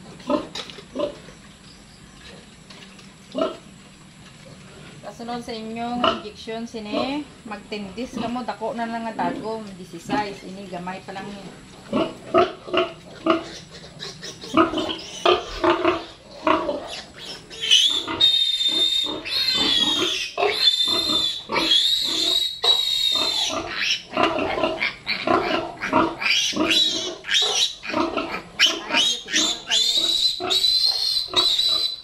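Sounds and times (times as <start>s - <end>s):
piglet grunting: 11.9s - 32.0s
piglet squealing: 13.3s - 32.0s.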